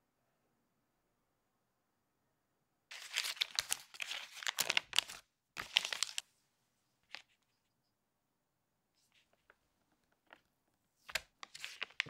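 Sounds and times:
paper wrapper crinkling: 2.9s - 6.3s, 7.0s - 7.5s, 9.1s - 12.0s.

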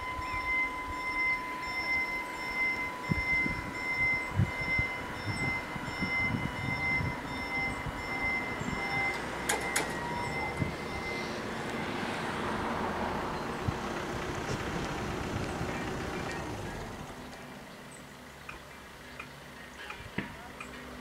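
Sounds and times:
level crossing bells ringing: 0.0s - 12.3s
approaching train rushing: 0.0s - 17.6s.

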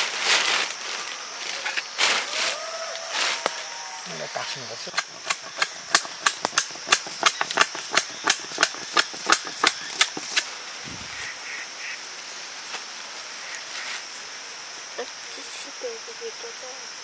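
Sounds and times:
blade chopping: 4.8s - 10.5s.

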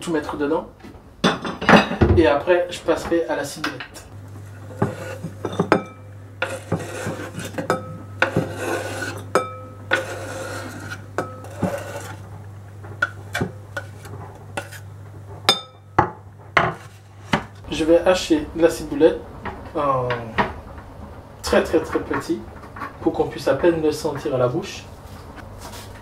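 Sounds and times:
knife scraping wooden board: 4.6s - 5.7s, 6.4s - 9.3s, 9.9s - 12.2s, 13.0s - 14.9s.

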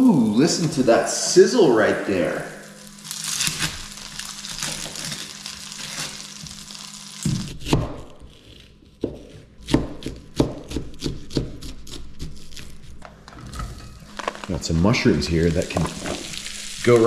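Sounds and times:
butter sizzling in skillet: 2.5s - 7.6s, 15.6s - 17.0s
knife chopping onion: 7.2s - 13.0s.

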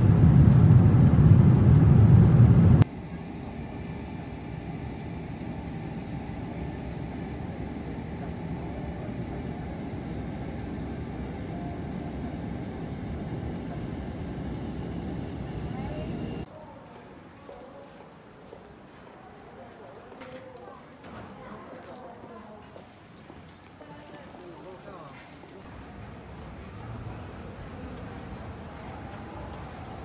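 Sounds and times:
loud low airliner rumble: 0.0s - 16.5s
steady low cabin rumble: 0.0s - 16.5s.

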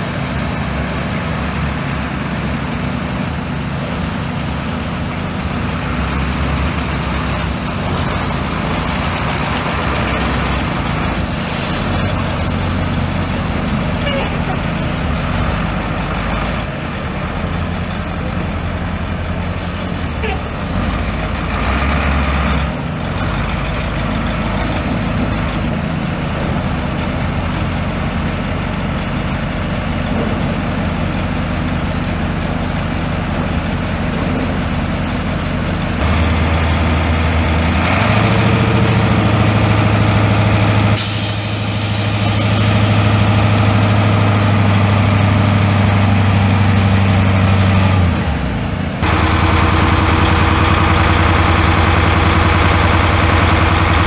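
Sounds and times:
diesel truck engine running: 0.0s - 54.0s
air hissing burst: 41.0s - 43.2s.

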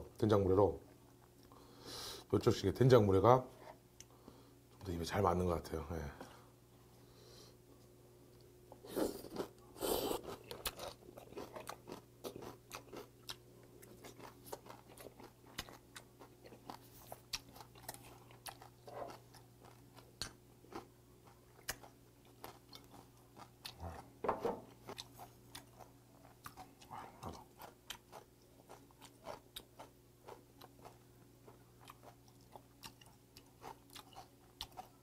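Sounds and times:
chewing with crunches: 8.8s - 35.0s.

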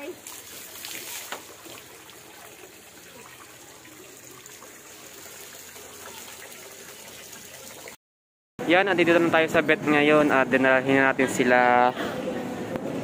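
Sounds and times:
tap water running into plastic basin: 0.0s - 8.0s.

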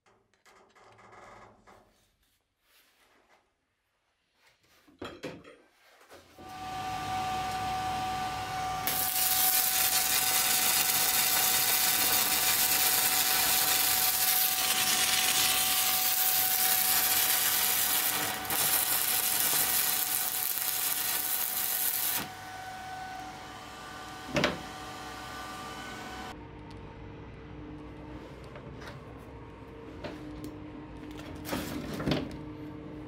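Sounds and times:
welding arc crackling: 8.8s - 22.4s.

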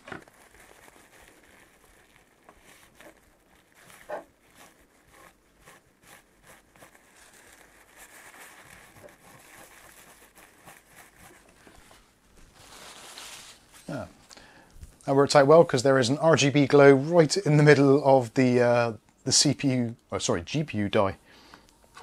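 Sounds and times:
paper towel rubbing and crinkling: 0.0s - 14.3s.

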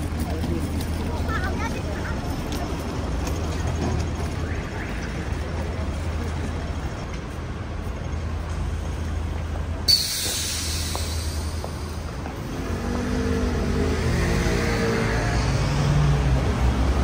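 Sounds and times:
traffic engine rumble: 0.0s - 17.0s
air brakes hissing: 9.9s - 12.0s.

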